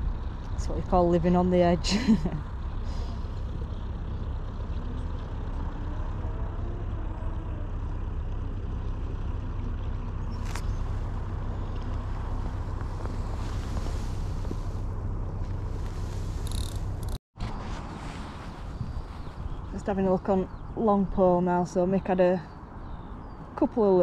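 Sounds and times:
boat engine rumble: 0:00.0 - 0:24.0.

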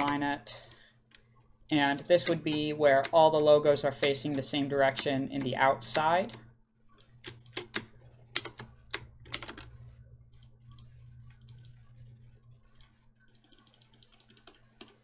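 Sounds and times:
keyboard and mouse clicks: 0:00.0 - 0:12.0, 0:12.6 - 0:15.0
steady low hum: 0:00.0 - 0:15.0.

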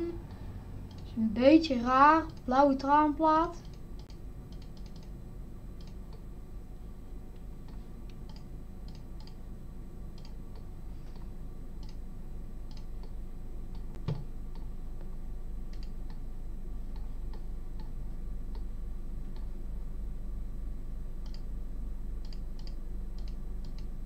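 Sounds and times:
low steady hum: 0:00.0 - 0:24.0
computer mouse clicking: 0:00.9 - 0:01.1, 0:03.6 - 0:05.1, 0:05.8 - 0:06.2, 0:07.4 - 0:09.4, 0:10.2 - 0:12.0, 0:12.7 - 0:14.7, 0:15.7 - 0:16.2, 0:21.2 - 0:21.4, 0:22.2 - 0:23.9.

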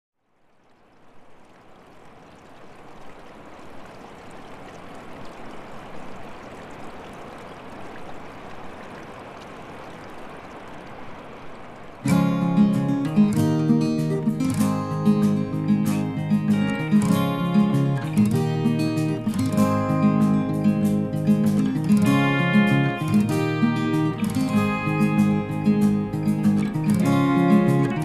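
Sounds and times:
rushing noise like water: 0:00.2 - 0:28.0
strummed acoustic guitar music: 0:12.1 - 0:28.0.

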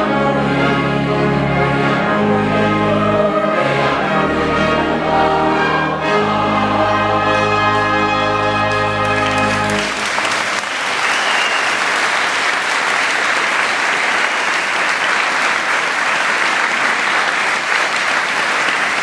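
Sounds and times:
choir singing held chord: 0:00.0 - 0:10.0
audience applause: 0:08.8 - 0:19.0.

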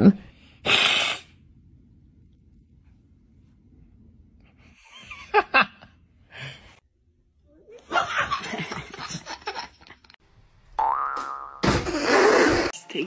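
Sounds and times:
people laughing: 0:07.8 - 0:10.2.

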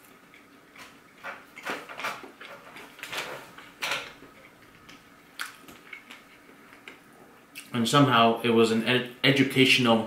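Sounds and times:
person chewing food: 0:00.0 - 0:07.7
wet mouth noises: 0:05.4 - 0:07.7.

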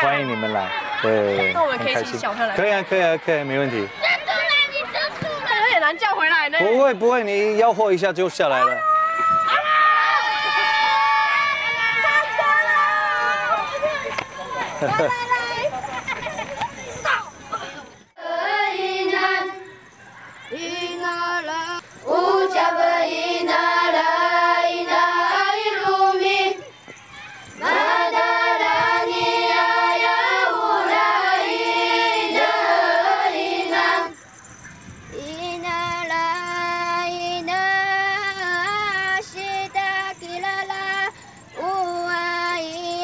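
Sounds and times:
children's choir singing: 0:18.1 - 0:19.8, 0:20.5 - 0:26.7, 0:27.6 - 0:34.2, 0:35.2 - 0:43.0.

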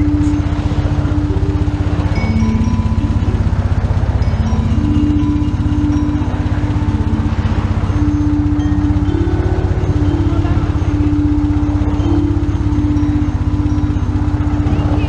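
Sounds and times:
motorcycle engine idling: 0:00.0 - 0:15.0.

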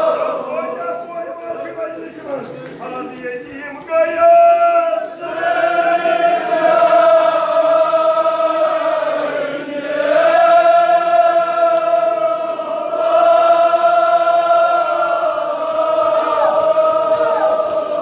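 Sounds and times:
men chanting elegy: 0:00.0 - 0:05.9, 0:10.4 - 0:18.0.

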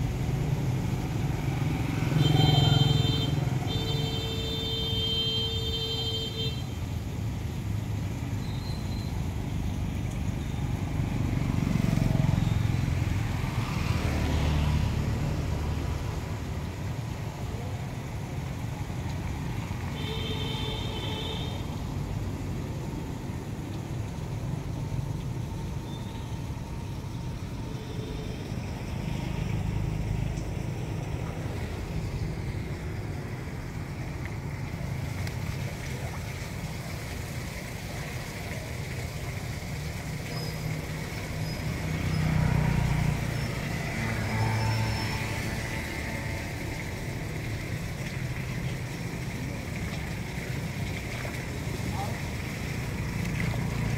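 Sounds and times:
motorbikes passing: 0:00.0 - 0:05.3, 0:09.4 - 0:22.4, 0:24.4 - 0:53.9
car passing on wet road: 0:00.0 - 0:06.5, 0:09.4 - 0:17.6, 0:26.4 - 0:53.9.

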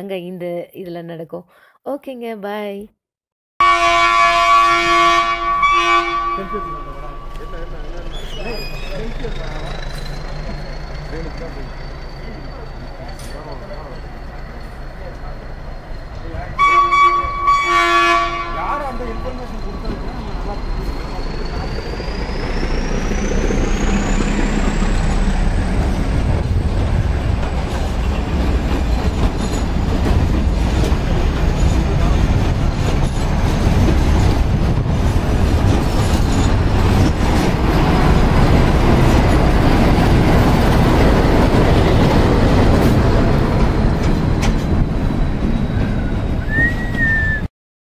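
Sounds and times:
train coaches rumbling: 0:03.9 - 0:47.4
high wheel squeal: 0:06.3 - 0:16.4, 0:18.6 - 0:25.2, 0:44.3 - 0:47.5.

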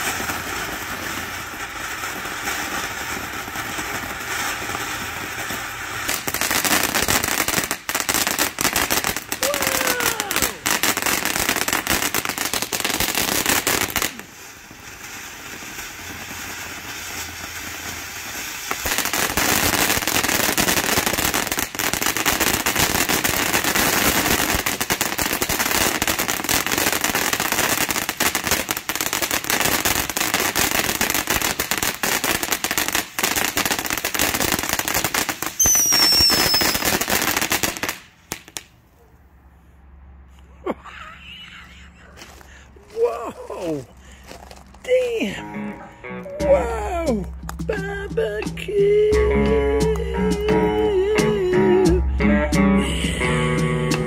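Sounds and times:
firework fountain crackling and hissing: 0:00.0 - 0:38.9
short falling whistle: 0:35.6 - 0:36.8.

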